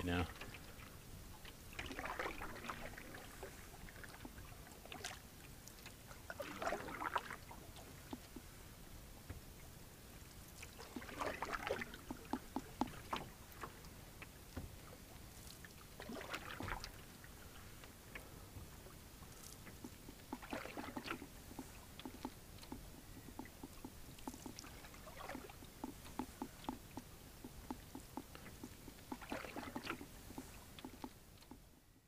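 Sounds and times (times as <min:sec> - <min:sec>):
paddle splashing in water: 0:00.0 - 0:31.8
water ticking against hull: 0:00.0 - 0:32.0
water dripping: 0:10.8 - 0:13.7, 0:19.3 - 0:31.6.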